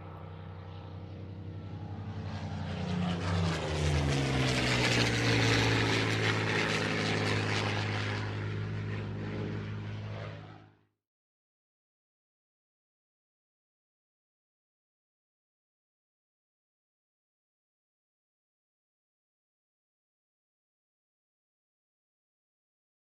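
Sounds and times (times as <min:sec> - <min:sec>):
propeller aircraft engine drone: 0:00.0 - 0:11.0.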